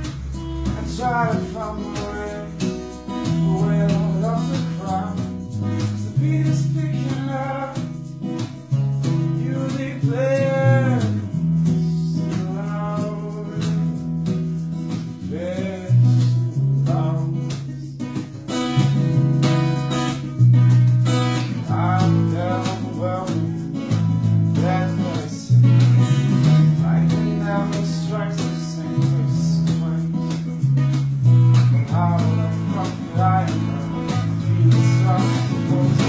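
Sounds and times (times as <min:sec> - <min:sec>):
low bass notes: 0:00.0 - 0:07.0
person singing: 0:00.0 - 0:08.1, 0:09.2 - 0:14.0, 0:15.1 - 0:18.5, 0:21.4 - 0:30.7, 0:31.7 - 0:36.0
strummed guitar: 0:00.0 - 0:36.0.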